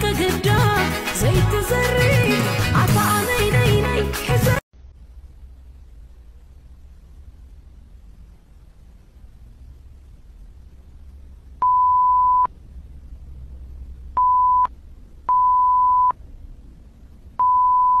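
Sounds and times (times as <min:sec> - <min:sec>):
faint low rumble: 0:04.8 - 0:18.0
censor bleep tone: 0:11.6 - 0:12.5, 0:14.2 - 0:14.7, 0:15.3 - 0:16.2, 0:17.4 - 0:18.0.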